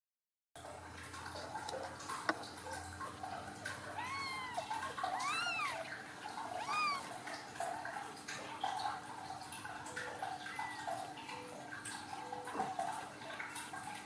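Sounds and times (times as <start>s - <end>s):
kittens mewing: 3.7s - 7.3s.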